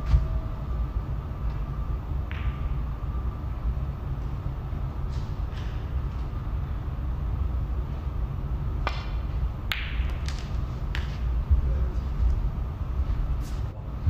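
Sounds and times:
steady low hum: 0.0s - 14.0s
snooker cue striking ball: 2.2s - 2.8s, 8.8s - 11.2s
snooker balls clicking: 2.2s - 2.9s, 8.8s - 11.3s.

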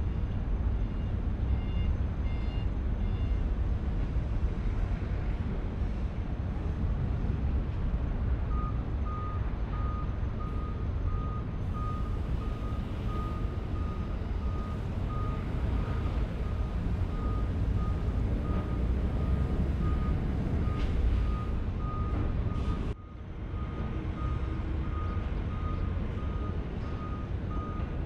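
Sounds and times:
reversing alarm beeping: 0.0s - 3.4s, 8.5s - 28.0s.

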